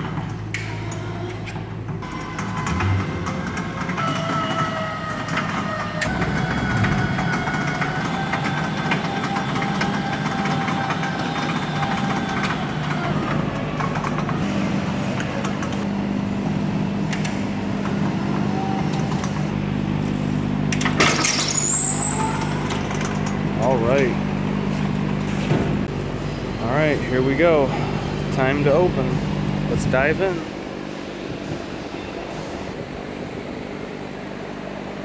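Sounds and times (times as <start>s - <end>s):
electric motor whining: 2.0s - 14.5s.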